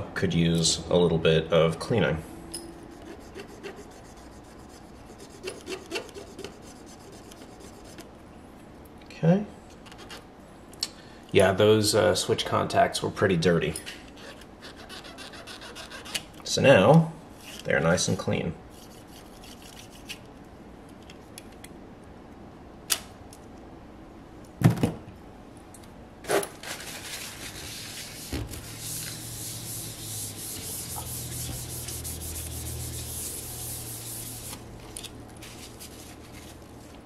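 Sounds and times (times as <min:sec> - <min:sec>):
paper towel wiping: 0:26.7 - 0:34.7, 0:35.4 - 0:36.6.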